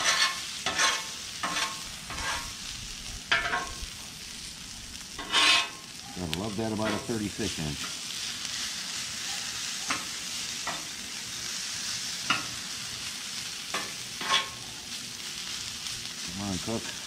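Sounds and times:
metal spatula scraping steel: 0.0s - 2.6s, 5.2s - 5.8s, 13.8s - 14.6s
potatoes sizzling on griddle: 0.0s - 17.0s.

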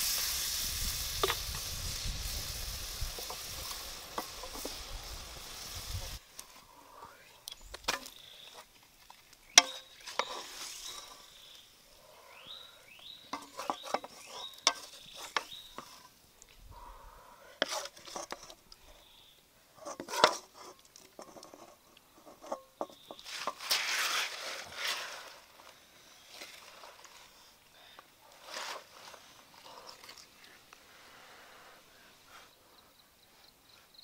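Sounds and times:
wooden spoon scraping a wok: 0.0s - 6.2s, 9.6s - 11.6s, 13.3s - 16.2s, 17.6s - 18.6s, 19.8s - 25.7s.

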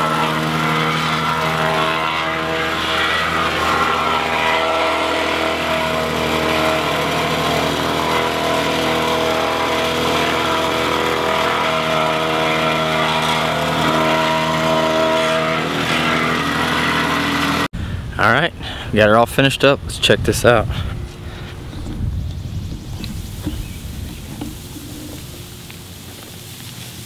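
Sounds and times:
plate compactor running: 0.0s - 17.7s, 22.8s - 26.6s.

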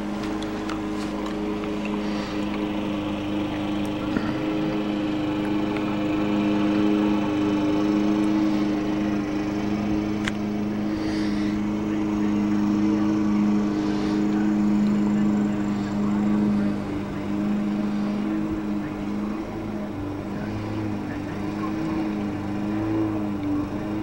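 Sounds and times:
lawn mower engine running: 0.0s - 24.0s.

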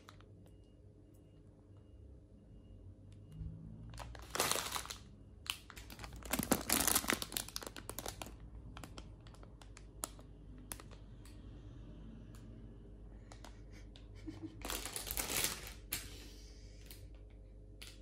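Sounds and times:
plastic bags crinkling: 3.9s - 11.0s, 14.6s - 16.1s.

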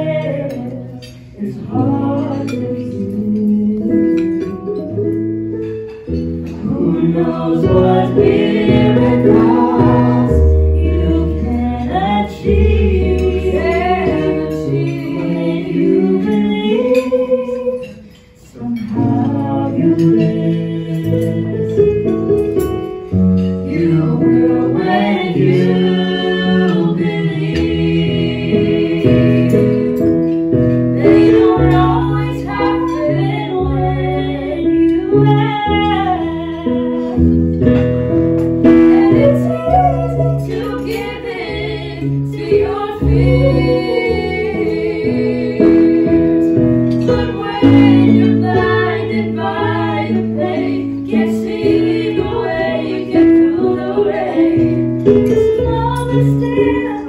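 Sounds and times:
vocal group singing: 0.0s - 4.7s, 6.5s - 22.2s, 23.4s - 37.4s, 38.6s - 57.0s
instrumental accompaniment: 0.0s - 57.0s.

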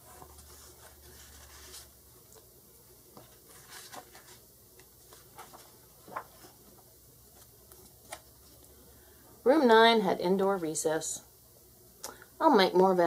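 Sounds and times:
paper page rustling: 0.0s - 2.5s, 3.1s - 8.6s.

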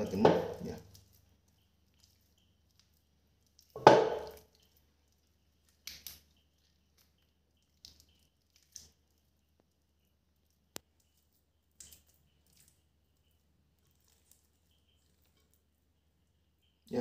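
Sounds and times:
wet squelching of marinated chicken: 0.0s - 17.0s
thump in a steel bowl: 0.2s - 0.6s, 3.8s - 4.3s.

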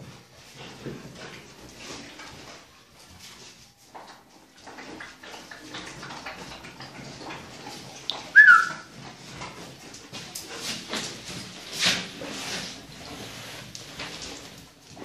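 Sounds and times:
high-pitched dog yelp: 8.2s - 8.9s.

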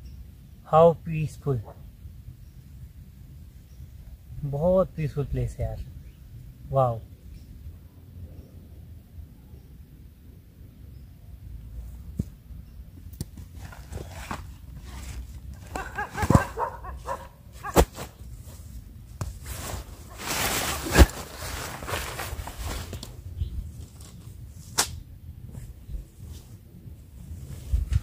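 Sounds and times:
camping gear rustling and knocking: 11.9s - 24.8s
dogs barking: 15.6s - 17.9s.

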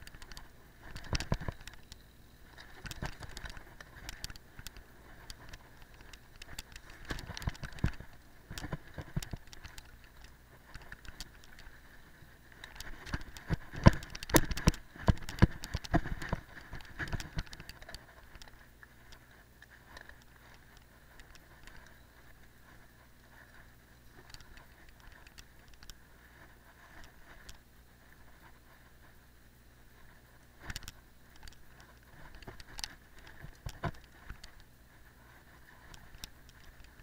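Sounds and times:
bike tyres rolling on grass: 0.0s - 18.7s
bike rattling over bumps: 12.7s - 18.4s.

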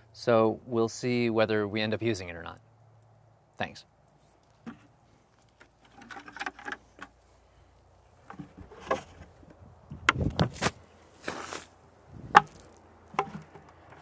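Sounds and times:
plastic bucket clunking: 5.8s - 7.1s, 8.2s - 10.4s, 12.3s - 14.0s.

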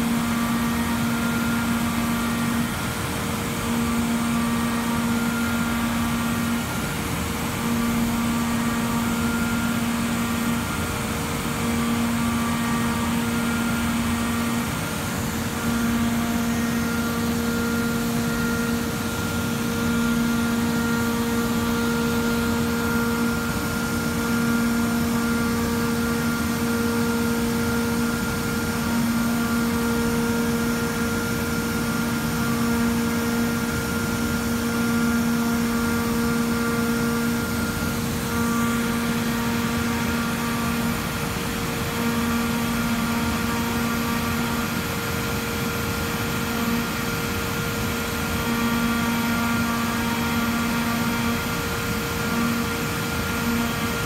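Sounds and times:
milling machine whine: 0.0s - 54.0s.

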